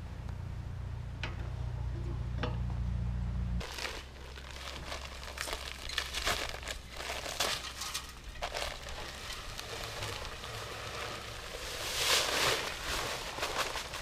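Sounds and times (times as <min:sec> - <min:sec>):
low steady hum: 0:00.0 - 0:14.0
paper sack crinkling: 0:03.6 - 0:14.0.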